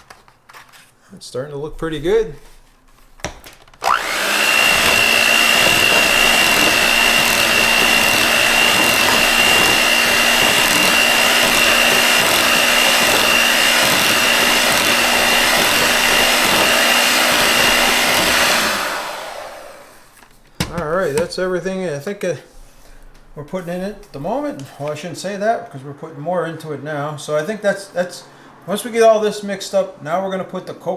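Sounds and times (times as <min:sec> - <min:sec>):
electric hand mixer whining: 0:03.8 - 0:20.2.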